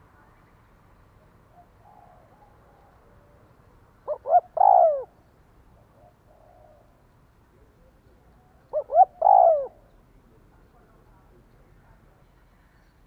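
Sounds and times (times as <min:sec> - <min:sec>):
dove cooing: 0:01.5 - 0:03.4, 0:04.0 - 0:05.2, 0:05.8 - 0:07.0, 0:07.8 - 0:10.0.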